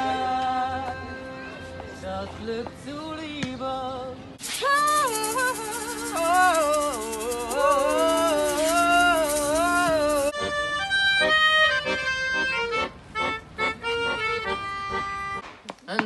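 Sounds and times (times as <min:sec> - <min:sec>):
piano accordion playing: 0:00.0 - 0:02.2, 0:04.8 - 0:15.4
woman singing: 0:04.4 - 0:10.3
shaker rattling: 0:04.4 - 0:10.4
melodica playing short notes: 0:04.6 - 0:15.4.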